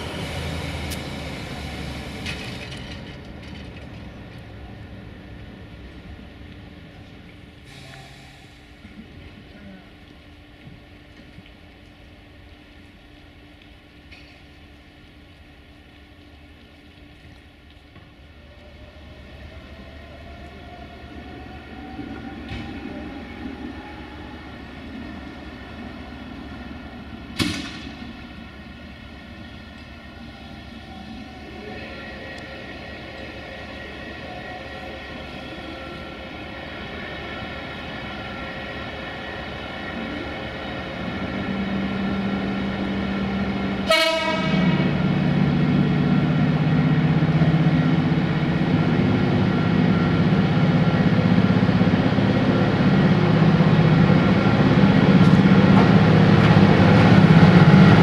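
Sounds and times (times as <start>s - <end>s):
electric locomotive whine and hum: 0.0s - 58.0s
short train horn toots: 43.8s - 45.0s.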